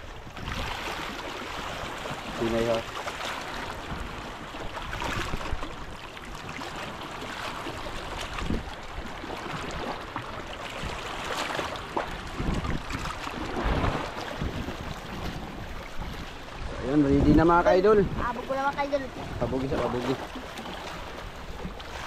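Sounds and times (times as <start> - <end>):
wind buffeting microphone: 0.0 - 2.8, 3.4 - 6.8, 7.6 - 10.0, 10.8 - 22.0
sea waves washing: 0.0 - 22.0.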